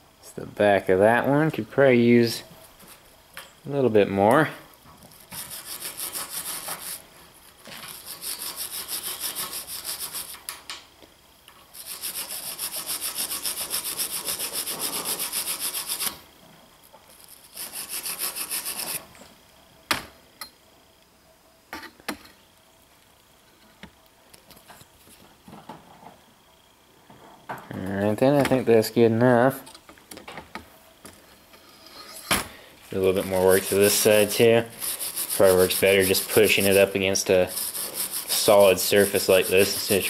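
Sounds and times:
wire brush scrubbing metal: 5.1s - 10.4s, 11.7s - 16.2s, 17.1s - 19.0s, 32.9s - 40.0s.

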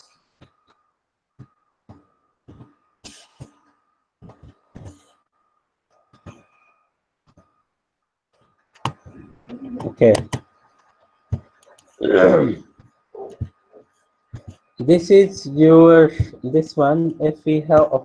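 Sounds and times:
breathy noises: 0.0s - 7.8s.

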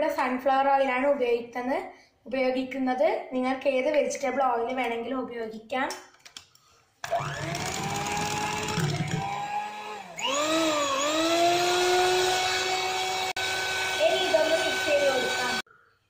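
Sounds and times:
electric hand mixer whining: 7.0s - 15.6s.

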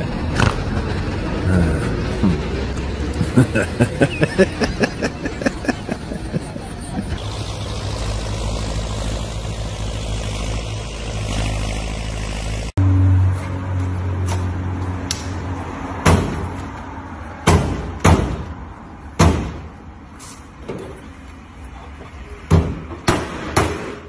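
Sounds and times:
tractor engine running: 0.0s - 12.8s.

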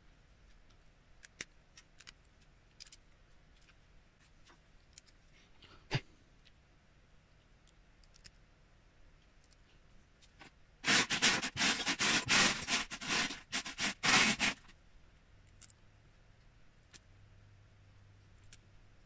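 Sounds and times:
hands rummaging through plastic bricks: 10.8s - 14.7s.

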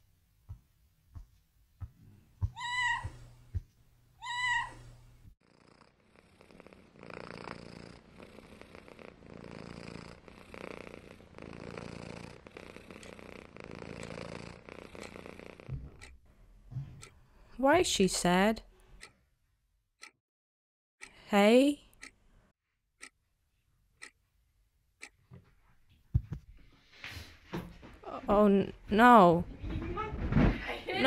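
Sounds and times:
cat meowing: 2.4s - 3.2s, 4.2s - 4.8s
cat purring: 5.4s - 15.8s
soft knocks: 15.7s - 16.0s, 26.1s - 26.5s.

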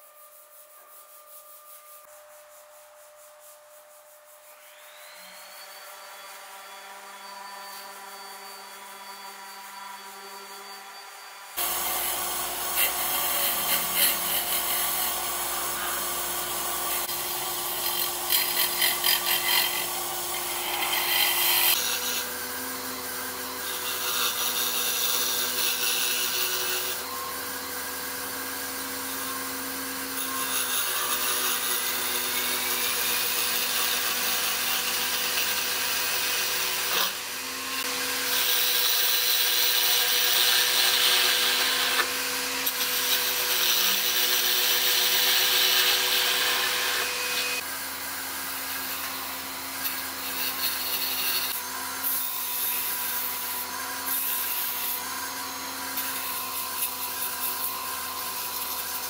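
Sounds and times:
wood lathe humming: 4.5s - 59.0s
turning tool scraping wood: 11.6s - 22.4s.

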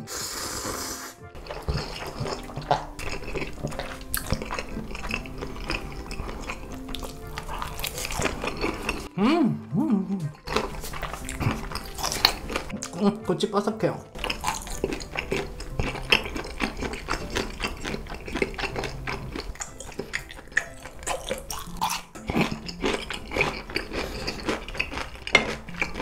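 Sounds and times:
chewing crisp food: 1.3s - 9.2s, 9.9s - 13.1s, 14.0s - 26.0s.

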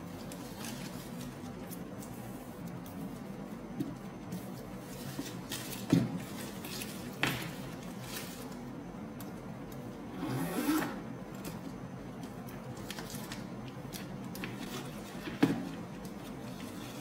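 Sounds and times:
plastic wrapping rustling scrape: 4.3s - 8.7s.

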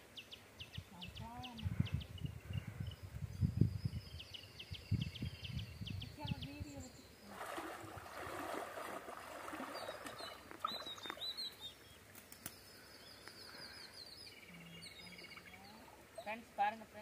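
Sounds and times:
birds chirping: 0.0s - 17.0s
person wading through stream: 7.3s - 11.5s.

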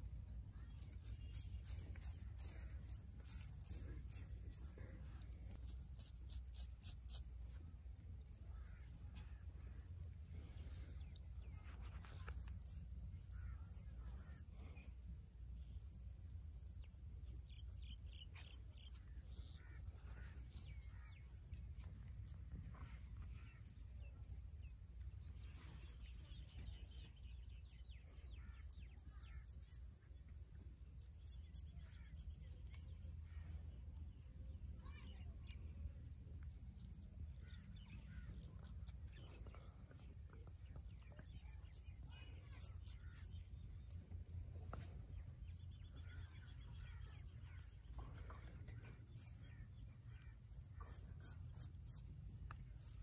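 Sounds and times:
steady low rumble: 0.0s - 53.0s
razor scraping stubble: 0.6s - 9.5s, 10.6s - 14.6s, 15.6s - 30.0s, 30.7s - 34.2s, 35.4s - 40.1s, 40.7s - 44.1s, 44.7s - 53.0s
birds calling: 8.2s - 14.9s, 15.6s - 35.7s, 36.4s - 53.0s.

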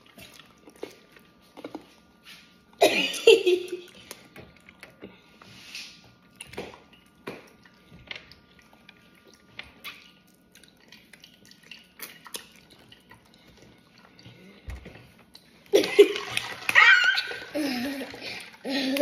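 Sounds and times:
person chewing: 0.0s - 2.1s, 6.2s - 15.7s.

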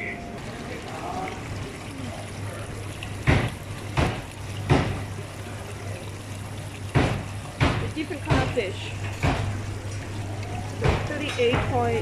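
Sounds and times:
loud water splashes: 0.0s - 12.0s
low pump hum: 0.0s - 12.0s
water churning and bubbling: 0.0s - 12.0s.

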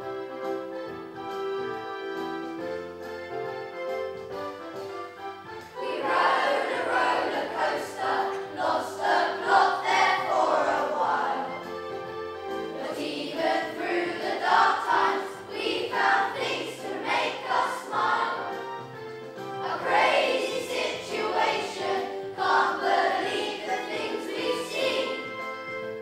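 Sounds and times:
instrumental accompaniment: 0.0s - 26.0s
children singing in unison: 5.8s - 11.6s, 12.7s - 18.6s, 19.6s - 25.6s.

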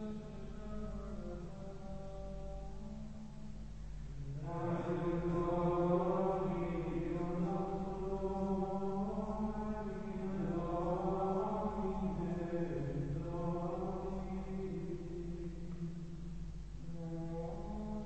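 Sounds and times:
men singing plainchant in unison: 4.4s - 15.4s.

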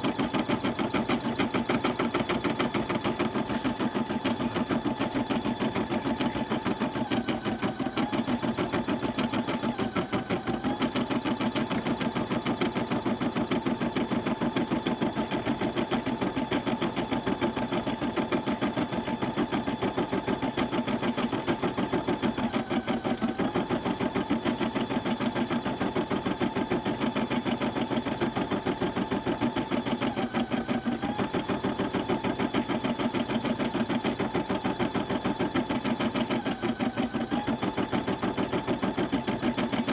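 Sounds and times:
embroidery machine needle stitching: 0.0s - 39.9s.

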